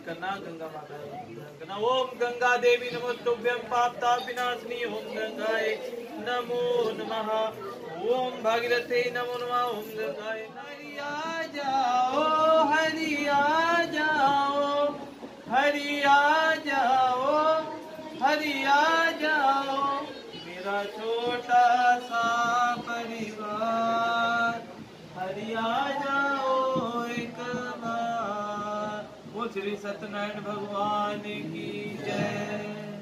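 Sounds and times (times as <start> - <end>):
man chanting: 1.7 - 24.6.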